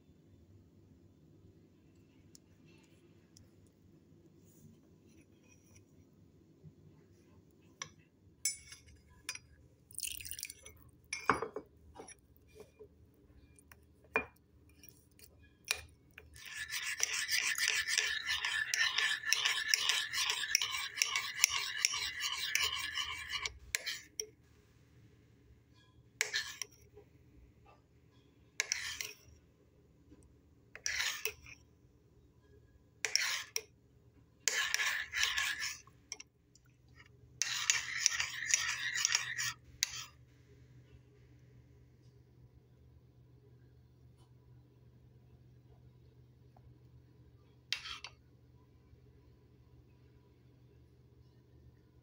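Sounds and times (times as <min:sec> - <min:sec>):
metal spoon scraping ceramic bowl: 0:13.4 - 0:24.4, 0:25.7 - 0:27.0, 0:28.2 - 0:29.4, 0:30.7 - 0:31.7, 0:33.0 - 0:33.7, 0:34.4 - 0:36.3, 0:37.0 - 0:40.2, 0:47.7 - 0:48.2.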